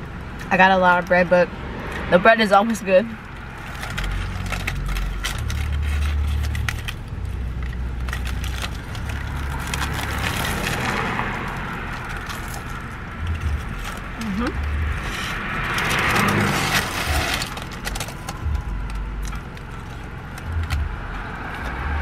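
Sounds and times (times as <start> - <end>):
low rumbling: 0.0 - 22.0
paper wrapper crackling: 3.3 - 20.8.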